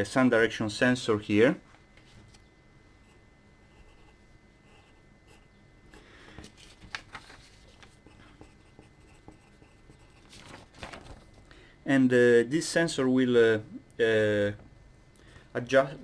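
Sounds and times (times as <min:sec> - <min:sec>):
pencil scratching on paper: 0:03.0 - 0:06.0, 0:07.9 - 0:10.3.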